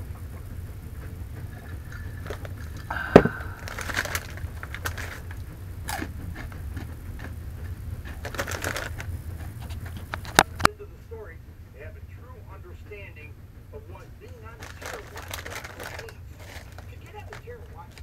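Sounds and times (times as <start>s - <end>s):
steady low hum: 0.0s - 18.0s
foil snack bag crinkling: 1.5s - 10.7s, 14.2s - 18.0s.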